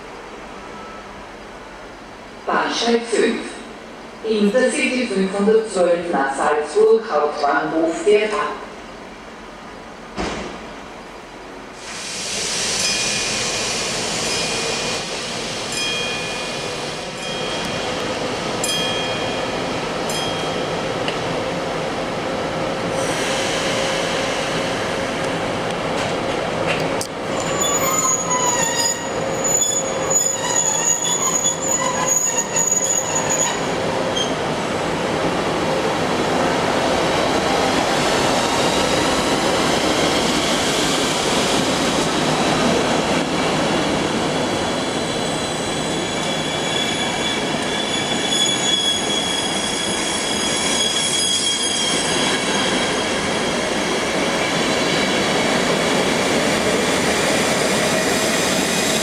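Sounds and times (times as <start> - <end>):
train rolling noise: 0.0 - 59.0
high-pitched wheel squeal: 27.4 - 34.4, 45.2 - 53.6.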